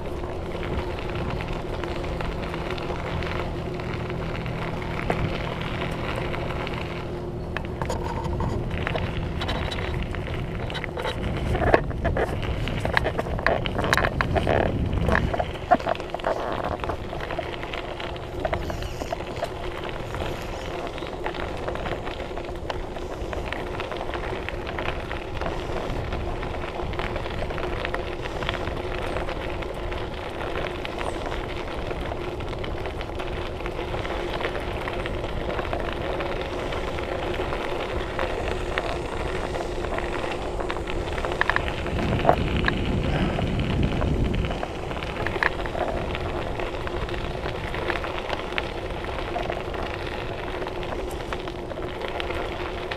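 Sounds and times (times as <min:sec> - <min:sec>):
bike tyres crackling on gravel: 0:00.0 - 0:52.9
wind on microphone: 0:07.7 - 0:52.8.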